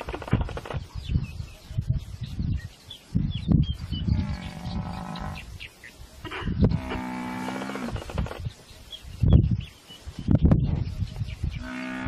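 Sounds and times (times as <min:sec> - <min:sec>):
low rough animal noises: 0:04.0 - 0:05.6, 0:06.2 - 0:08.4, 0:11.5 - 0:12.0
drawn-out low animal call: 0:06.2 - 0:08.4, 0:11.5 - 0:12.0.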